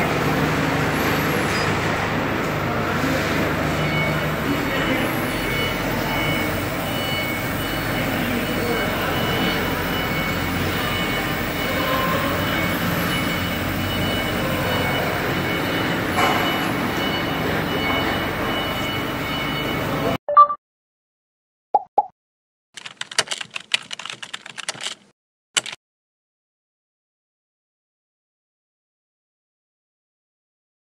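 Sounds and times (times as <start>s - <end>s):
faint high whining tones: 3.0s - 20.2s.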